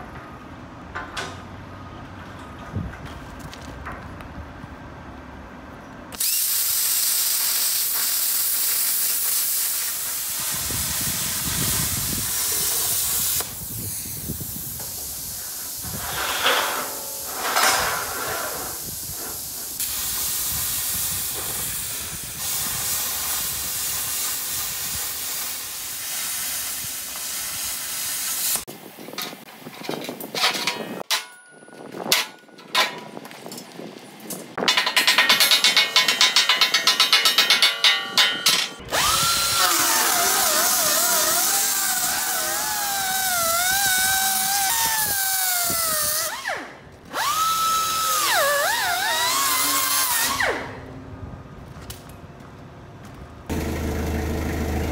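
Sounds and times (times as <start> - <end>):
plasma cutter hissing: 6.2 - 28.7, 39.0 - 46.4
sharp clicks and knocks: 34.3 - 38.8.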